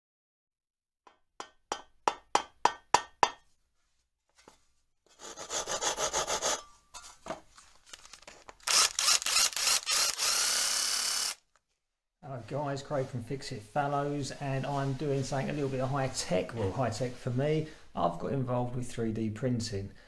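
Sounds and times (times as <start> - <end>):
hand saw cutting wood: 5.1 - 6.7.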